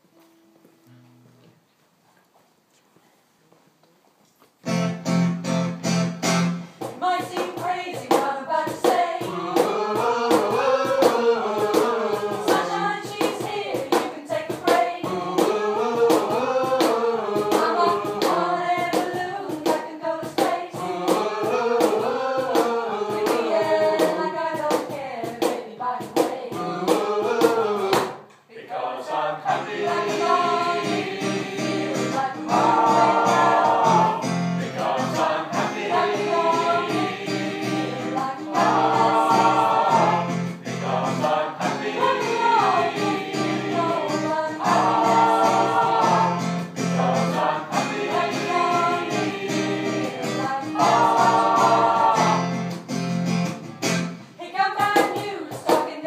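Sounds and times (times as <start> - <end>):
vocal group singing in harmony: 6.9 - 52.9, 54.3 - 56.0.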